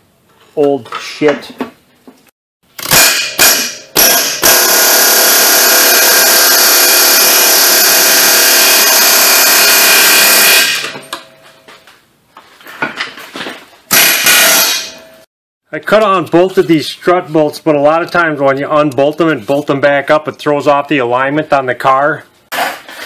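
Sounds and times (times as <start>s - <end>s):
pneumatic air hammer hammering: 2.8s - 11.3s, 13.9s - 15.2s.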